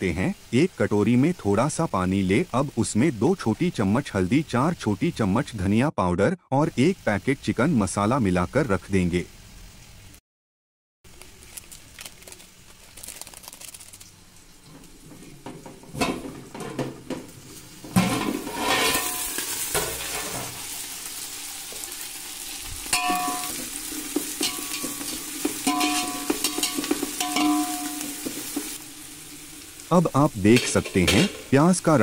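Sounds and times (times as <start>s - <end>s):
onions sizzling in oil: 0.0s - 5.0s, 13.4s - 32.0s
metal spatula scraping a pot: 17.9s - 20.6s, 22.9s - 28.8s.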